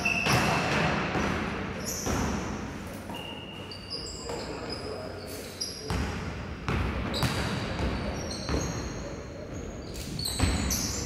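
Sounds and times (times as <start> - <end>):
sneakers squeaking: 0.0 - 11.0.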